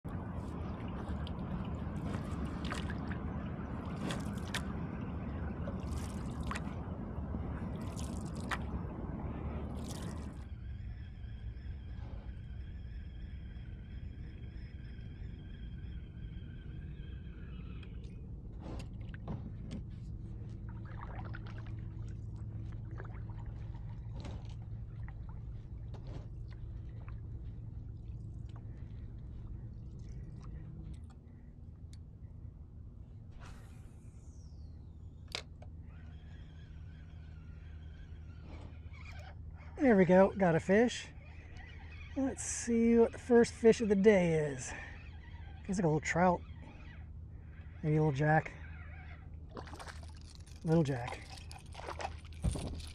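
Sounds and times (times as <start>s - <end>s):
steady low hum: 0.0s - 52.9s
steady low rumble: 0.0s - 52.9s
water lapping along kayak hull: 0.0s - 52.9s
paddle splashes: 0.4s - 6.9s, 20.7s - 27.2s, 49.5s - 52.9s.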